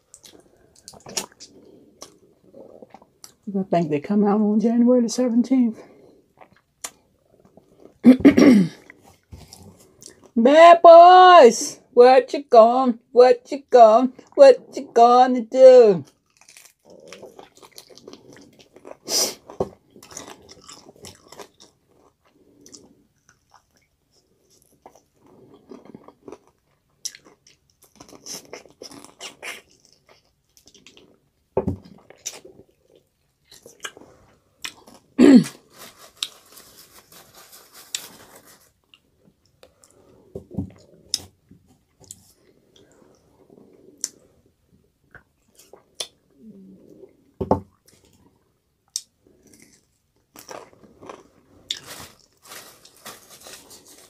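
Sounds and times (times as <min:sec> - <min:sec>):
person chewing wetly: 0:00.1 - 0:03.4, 0:06.4 - 0:08.0, 0:16.1 - 0:35.2, 0:47.2 - 0:51.9
crunching of fried coating: 0:16.0 - 0:31.1, 0:48.9 - 0:54.0.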